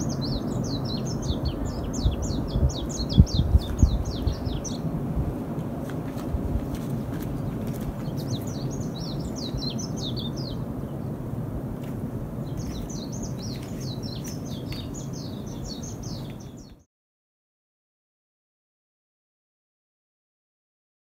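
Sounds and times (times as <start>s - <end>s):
small birds chirping: 0.0s - 5.1s, 6.1s - 16.9s.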